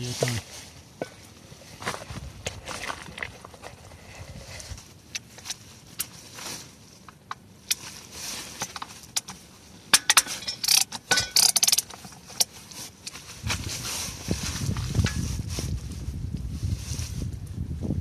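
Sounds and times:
ratchet wrench clicking: 10.0s - 11.9s.

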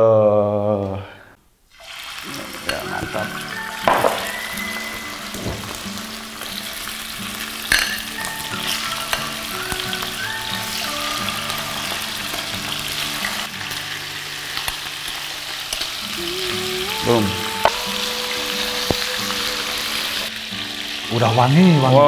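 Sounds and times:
chicken sizzling in frying pan: 1.7s - 22.0s.

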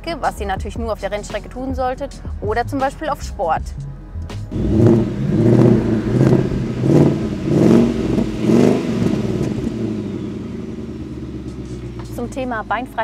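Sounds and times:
car engine revving: 4.3s - 13.0s.

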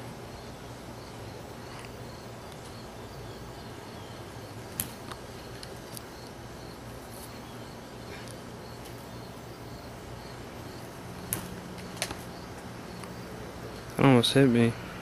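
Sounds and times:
insects chirping: 0.0s - 15.0s
bat cracking a bean: 4.7s - 6.1s, 11.2s - 13.2s.

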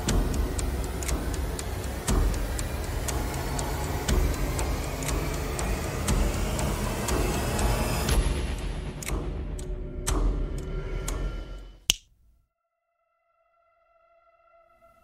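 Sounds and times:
sharp ticks: 0.0s - 7.7s, 9.0s - 10.2s.

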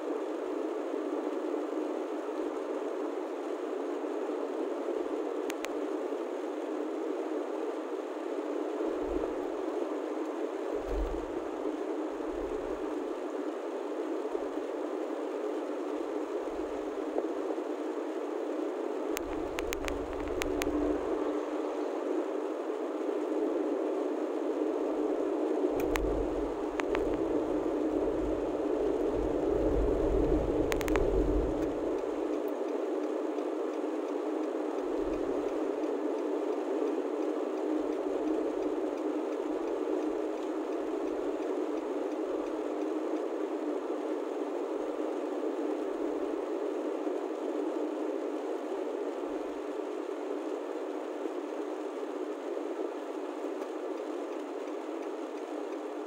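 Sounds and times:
faint clicks: 5.4s - 5.9s, 19.1s - 21.0s, 25.8s - 27.3s, 29.0s - 43.8s, 53.2s - 56.0s.

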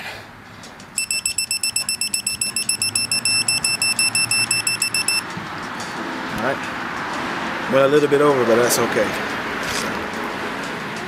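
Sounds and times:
torque wrench beeping rapidly: 1.0s - 5.2s.

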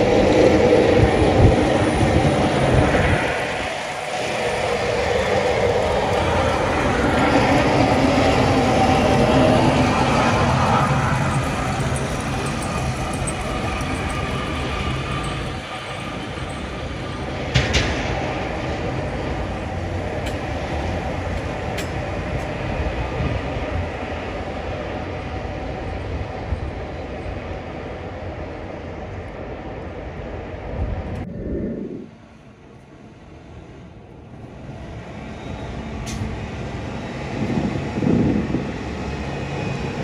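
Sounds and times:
plow blades scraping road: 0.0s - 23.6s
quiet street background: 0.0s - 40.0s.

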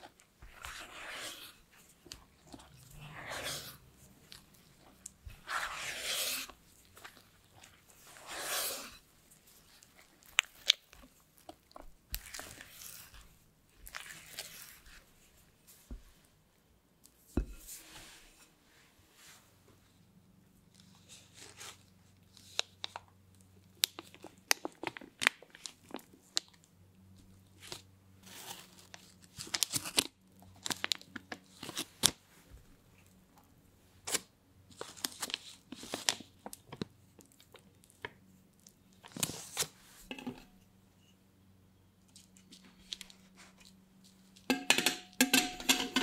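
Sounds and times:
plastic piping bag crinkling: 27.6s - 32.2s.

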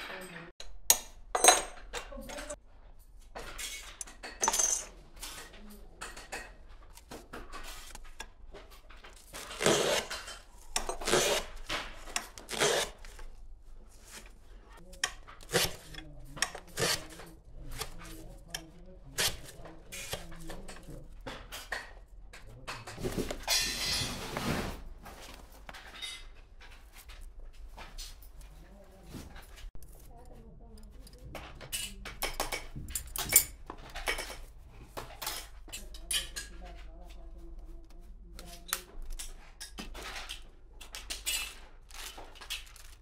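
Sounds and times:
small parts knocking and clinking: 0.1s - 11.0s, 29.5s - 36.9s, 38.6s - 43.0s
rubbing and scraping of brushes: 6.8s - 21.5s.

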